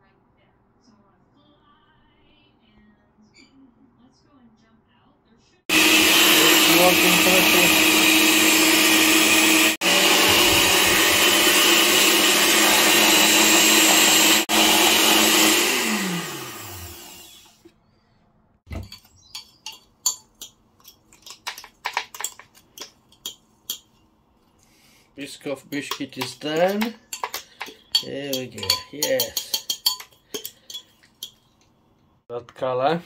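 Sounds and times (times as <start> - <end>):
blender motor winding down: 5.7 - 17.6
blender whirring: 5.7 - 17.6, 25.8 - 30.6.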